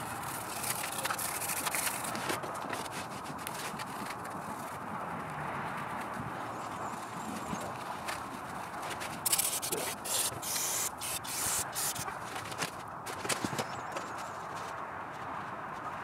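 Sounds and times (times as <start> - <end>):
aerosol spray can hissing: 9.3 - 12.1.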